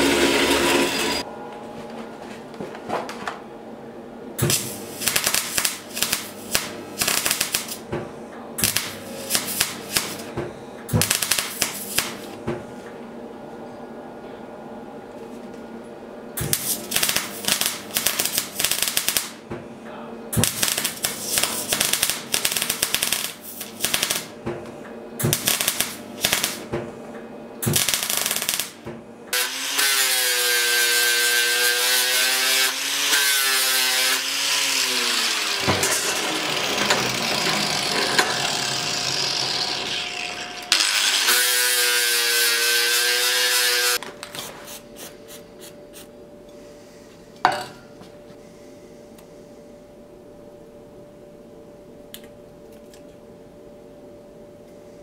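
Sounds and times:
angle grinder grinding steel: 0.0s - 1.2s, 29.4s - 44.0s.

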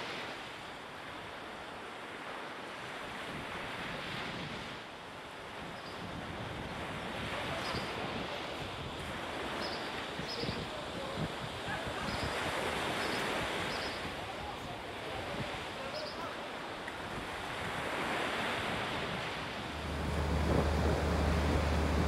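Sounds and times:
sea waves washing: 6.2s - 22.0s
wind buffeting microphone: 17.0s - 22.0s
steady low hum: 19.6s - 22.0s.

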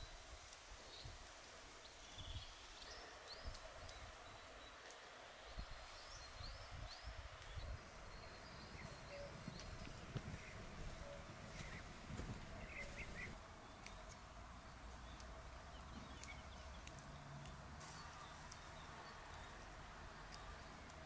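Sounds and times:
small birds whistling: 5.5s - 14.2s, 15.0s - 19.6s.

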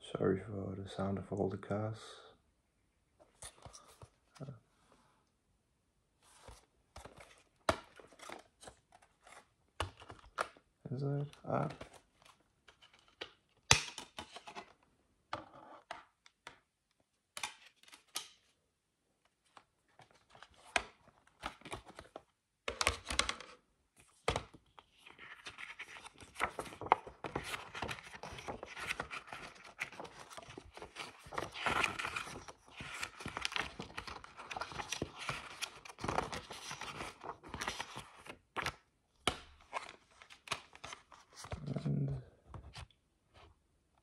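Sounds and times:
paper pages rustling: 6.2s - 10.6s, 19.5s - 41.9s.

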